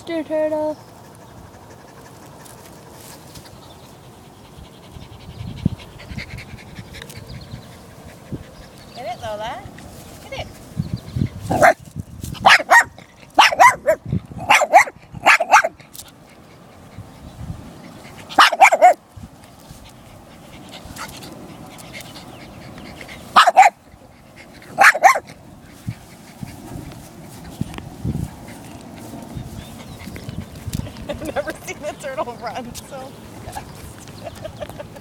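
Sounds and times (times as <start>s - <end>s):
puppy yapping barks: 11.5s - 11.8s, 12.4s - 15.8s, 18.3s - 19.0s, 23.4s - 23.8s, 24.8s - 25.3s.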